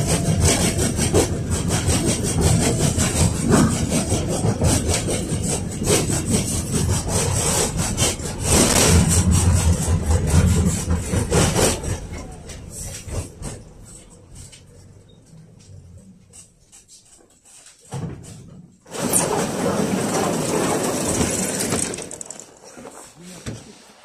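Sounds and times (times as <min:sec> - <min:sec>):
car body rattling and clattering: 0:00.0 - 0:15.9, 0:17.9 - 0:23.1
tram wheels rumbling on rails: 0:00.0 - 0:16.4, 0:18.9 - 0:23.0.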